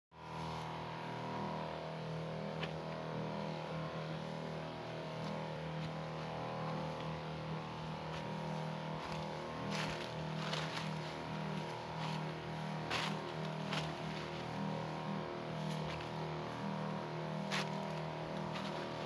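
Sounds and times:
crop sprayer engine running: 0:00.2 - 0:19.0.

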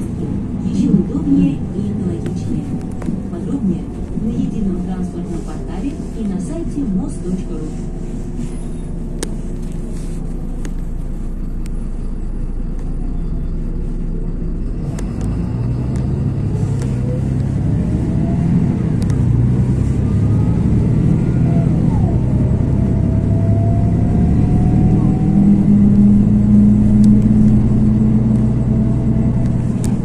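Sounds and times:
bus engine hum: 0:00.0 - 0:30.0
rising whine: 0:10.8 - 0:30.0.

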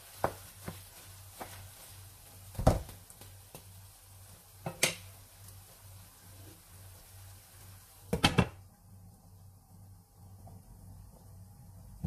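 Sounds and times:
wooden spatula knocking on pan: 0:00.2 - 0:01.6
low steady hum: 0:00.9 - 0:12.0.

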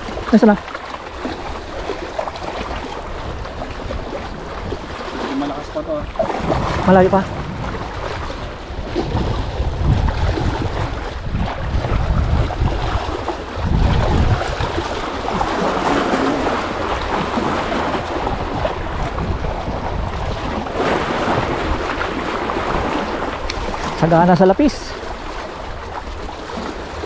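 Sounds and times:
waves washing against rocks: 0:00.0 - 0:27.0
wind buffeting microphone: 0:00.0 - 0:27.0.

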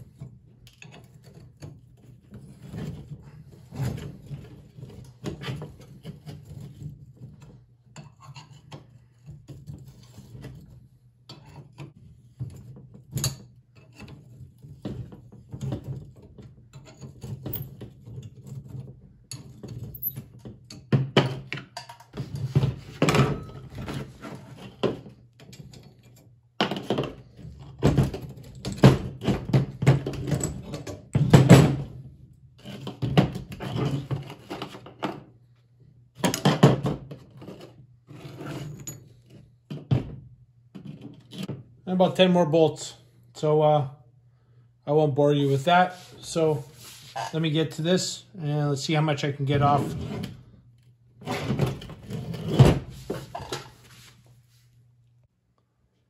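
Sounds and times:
metal parts clanking on a workbench: 0:19.3 - 0:22.3.

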